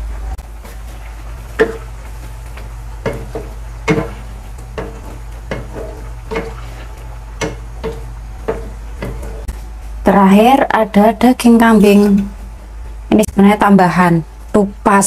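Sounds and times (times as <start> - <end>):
low steady hum: 0.0 - 15.0
spatula stirring soup: 0.5 - 9.9
wooden spatula knocking pan: 1.5 - 9.5.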